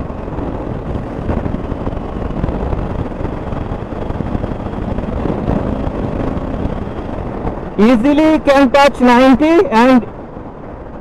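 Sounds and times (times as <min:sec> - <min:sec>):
motorcycle engine running: 0:00.0 - 0:08.5
wind rushing on microphone: 0:00.0 - 0:11.0.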